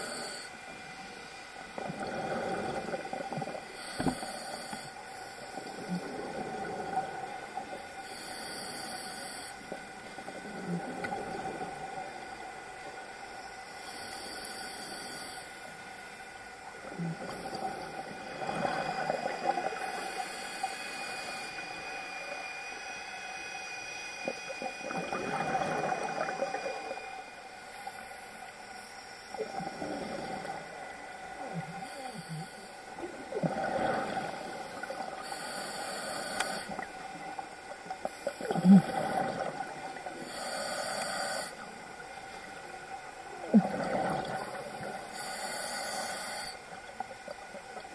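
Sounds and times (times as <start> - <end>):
regulator hiss on inhale: 0.0 - 43.6, 44.2 - 47.9.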